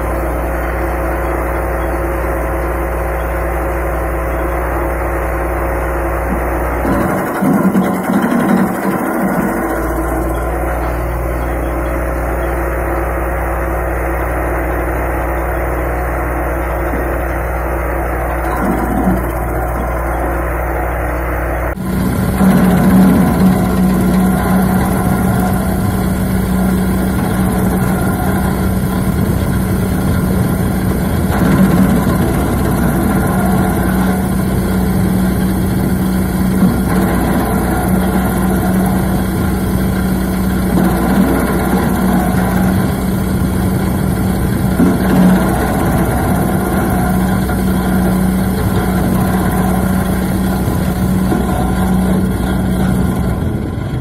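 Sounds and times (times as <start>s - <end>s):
chipper engine running: 0.0s - 54.0s.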